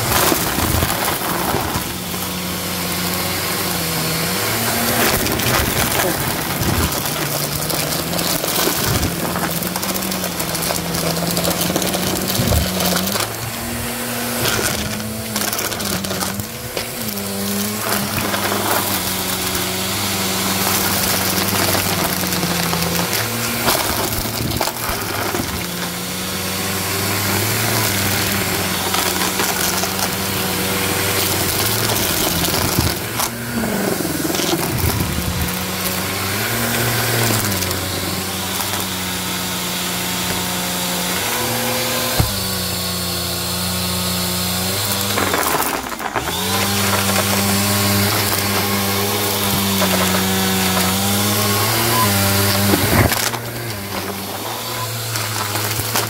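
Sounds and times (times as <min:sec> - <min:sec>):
debris crackling through brush roll: 0:00.0 - 0:26.0
vacuum cleaner motor humming: 0:00.0 - 0:56.0.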